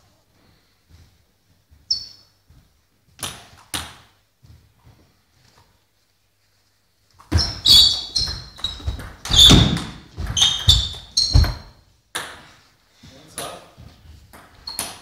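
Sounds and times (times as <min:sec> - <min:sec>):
table tennis ball hits: 0:08.2 - 0:12.4, 0:14.3 - 0:15.0.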